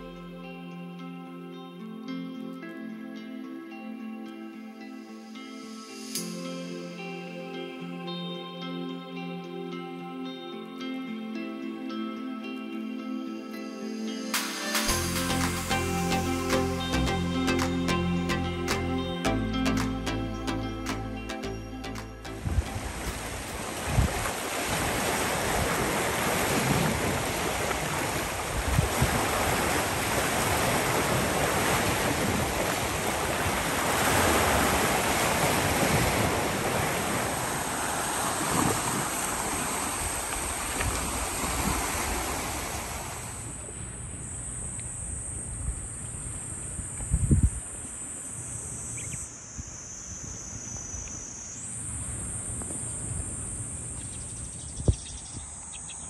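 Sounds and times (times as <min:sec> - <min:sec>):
waves: 0:03.7 - 0:56.0
wind buffeting microphone: 0:22.4 - 0:42.7, 0:45.6 - 0:47.8
high-pitched insect trill: 0:43.3 - 0:56.0.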